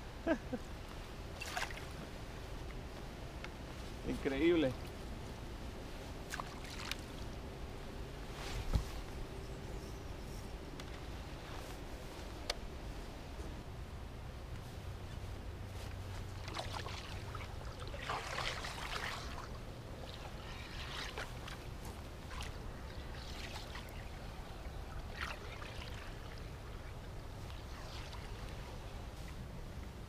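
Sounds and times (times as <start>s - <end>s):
low steady rumble: 0.0s - 30.0s
water lapping against hull: 6.2s - 7.4s, 15.8s - 29.8s.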